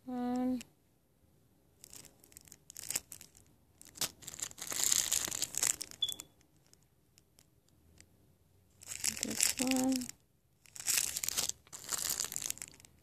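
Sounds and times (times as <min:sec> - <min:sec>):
plastic bags crinkling: 0:01.8 - 0:07.5, 0:08.8 - 0:13.0.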